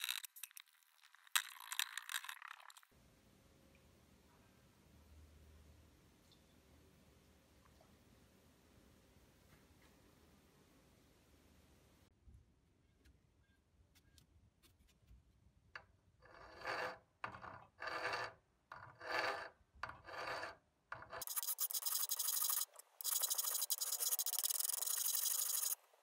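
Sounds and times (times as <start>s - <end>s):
file rasping on steel: 16.2s - 25.8s.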